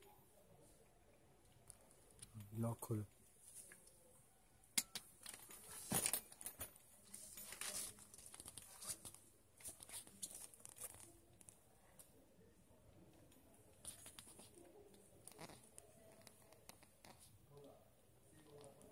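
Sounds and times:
soft clicks and scuffs: 13.7 - 17.7.

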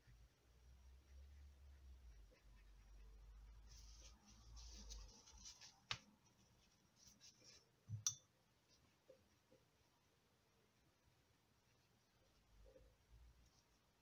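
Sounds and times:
brush swishing on paper: 0.9 - 7.8.

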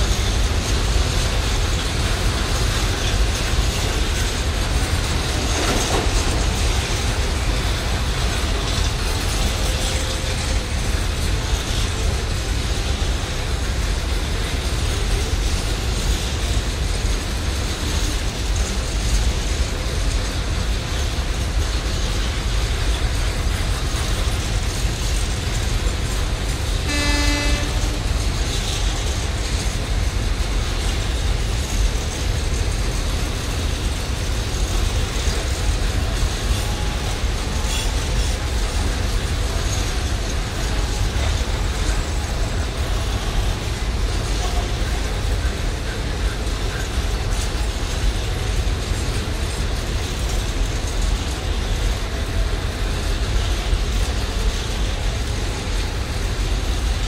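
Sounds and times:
train wheels rumbling on rails: 0.0 - 57.0
short train horn toot: 26.8 - 28.1.

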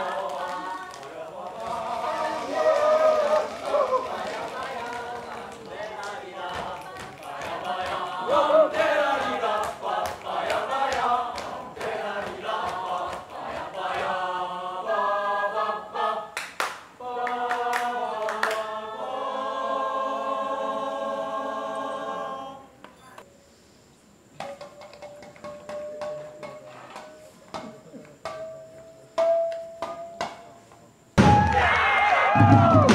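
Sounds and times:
choir singing a cappella: 0.0 - 22.9.

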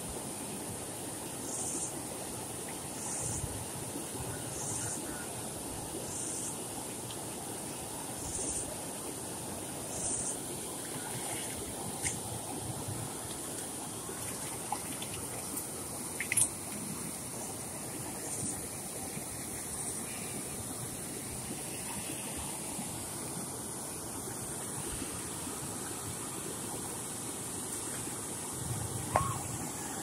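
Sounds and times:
water rushing over spillway: 6.6 - 30.0.

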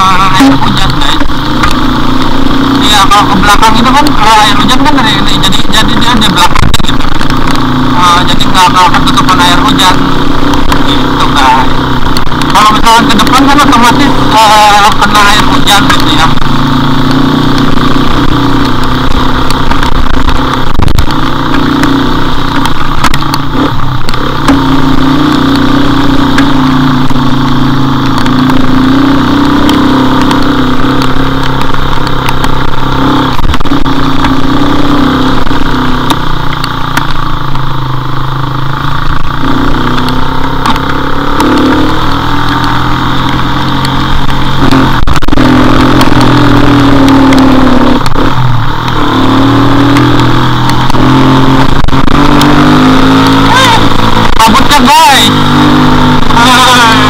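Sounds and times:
motorcycle engine revving: 0.0 - 57.0
wind noise: 6.4 - 7.6, 17.6 - 24.4, 42.5 - 54.7.

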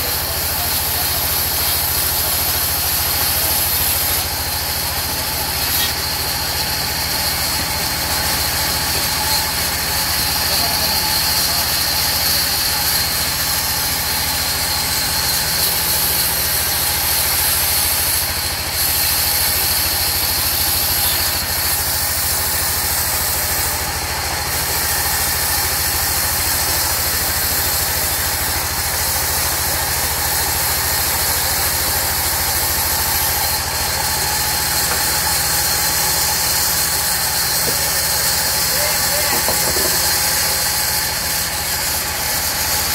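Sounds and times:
band saw cutting wood: 0.0 - 42.9.

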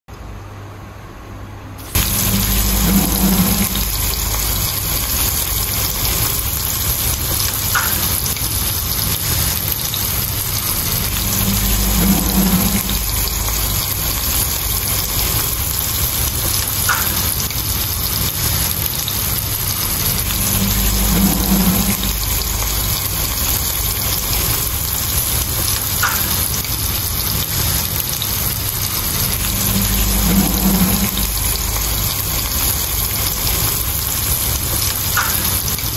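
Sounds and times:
fish sizzling in hot oil: 1.8 - 35.9.

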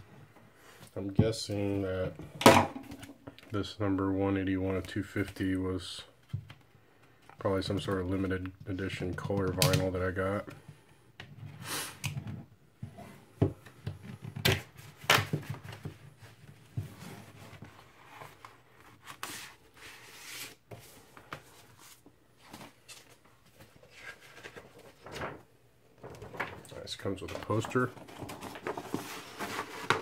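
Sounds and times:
paper and cardboard rustling: 14.0 - 30.0.

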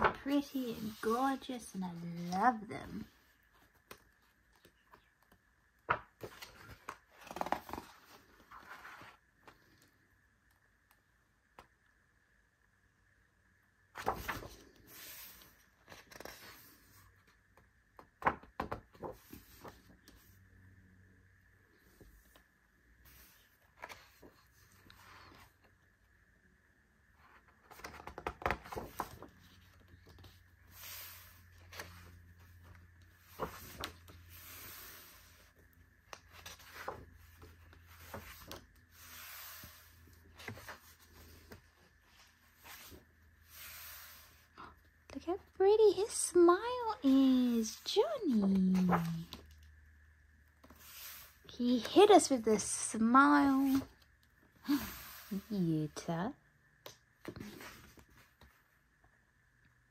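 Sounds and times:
paper pages swishing: 0.0 - 1.5, 53.4 - 54.0
page crackling when turned: 3.6 - 9.9, 14.0 - 17.0, 18.0 - 20.3, 27.3 - 35.4, 36.0 - 43.0, 47.6 - 49.6, 53.6 - 54.0.

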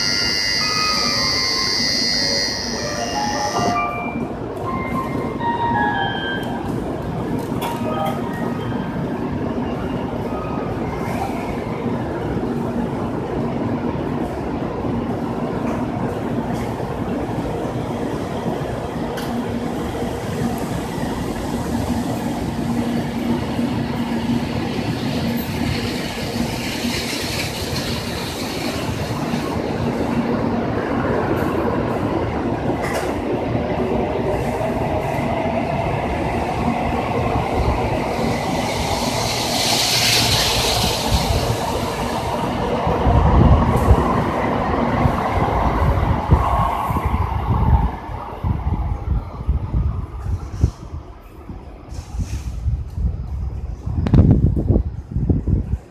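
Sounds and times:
train motor whine: 0.0 - 4.2
train cars rushing and clattering: 0.0 - 55.9.

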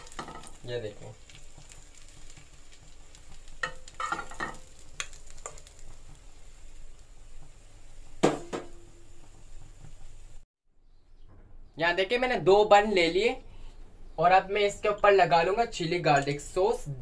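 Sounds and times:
oil sizzling in frying pan: 0.0 - 10.5.

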